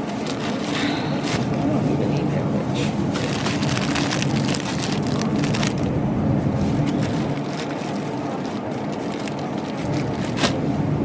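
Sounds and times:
low background rumble: 0:00.0 - 0:11.0
plastic bag crinkling: 0:03.1 - 0:05.9, 0:06.6 - 0:10.7.

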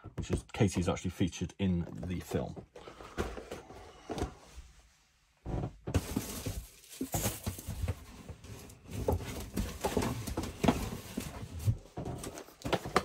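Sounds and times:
cardboard boxes knocking and rustling: 0:01.9 - 0:04.4, 0:05.5 - 0:13.0.

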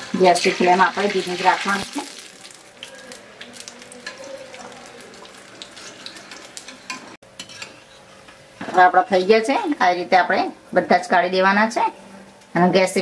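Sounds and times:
food deep-frying in oil: 0:00.0 - 0:07.8.

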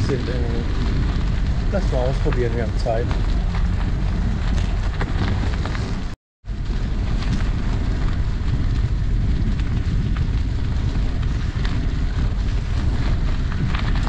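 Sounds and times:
tyres crunching on gravel: 0:00.0 - 0:06.2
wind buffeting microphone: 0:00.0 - 0:14.0.

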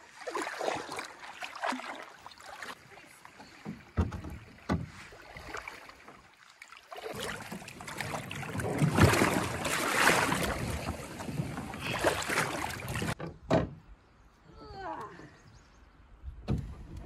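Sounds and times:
water splashing around canoe: 0:00.0 - 0:13.2.

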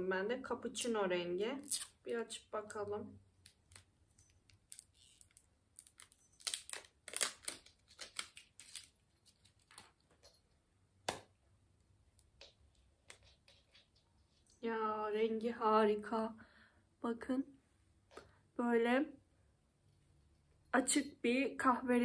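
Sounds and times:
packaging rustling: 0:03.6 - 0:10.4.

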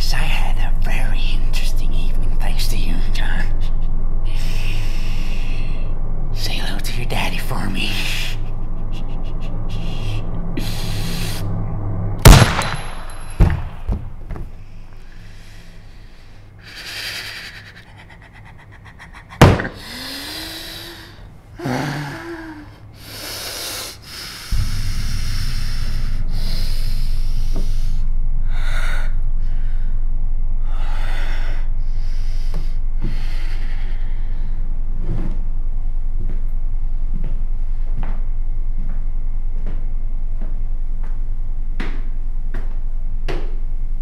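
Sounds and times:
low drone: 0:00.0 - 0:44.0
revolver shot: 0:12.2 - 0:14.1.

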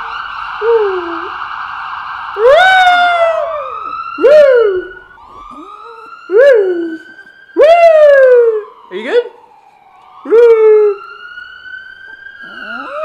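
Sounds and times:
police siren wailing: 0:00.0 - 0:13.0
dog howling: 0:12.4 - 0:13.0.

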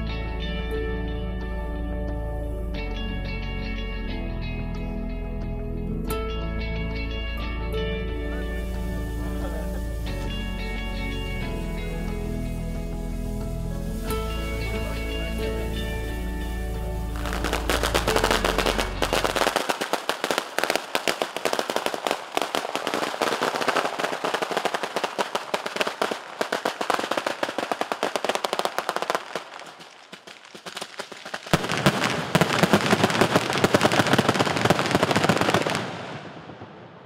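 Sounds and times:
firecrackers crackling: 0:08.3 - 0:37.0.

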